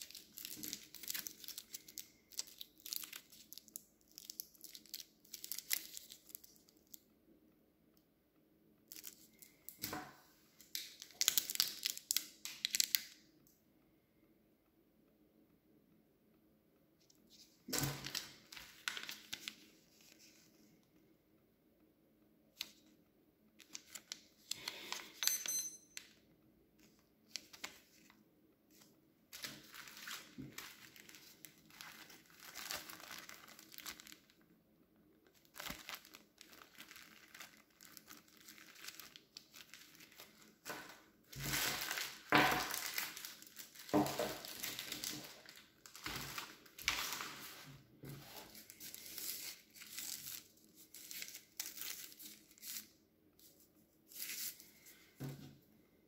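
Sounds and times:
packaging crinkling and tearing: 0.0 - 7.0, 10.6 - 13.2, 17.3 - 20.3, 23.6 - 25.2, 29.3 - 34.4, 35.2 - 53.0.

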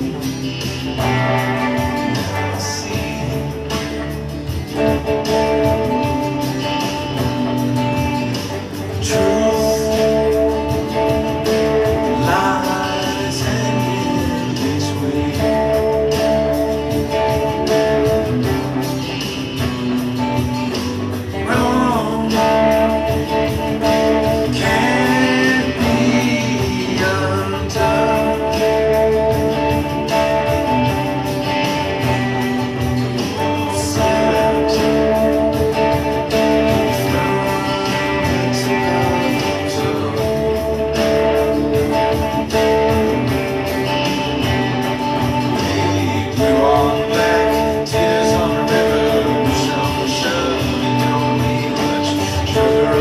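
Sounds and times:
electric blues guitar: 0.0 - 53.0.

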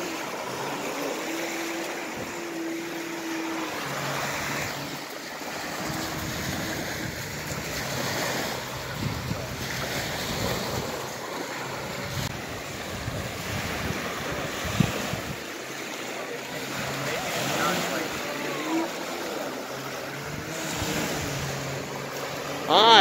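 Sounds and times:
waves washing onto pebbles: 0.0 - 23.0
wind buffeting microphone: 4.0 - 15.5, 20.0 - 22.7.

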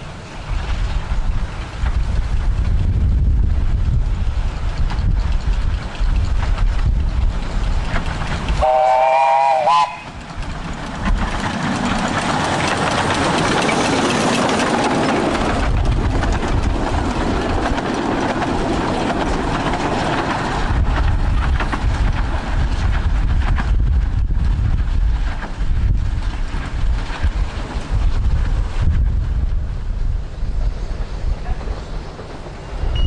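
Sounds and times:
wind rumbling on microphone: 0.0 - 33.0
miniature train running: 0.5 - 33.0
short train whistle: 8.6 - 10.1.

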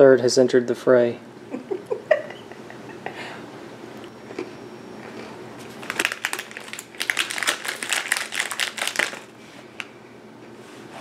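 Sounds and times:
plastic wrapper crinkling: 5.7 - 9.3.

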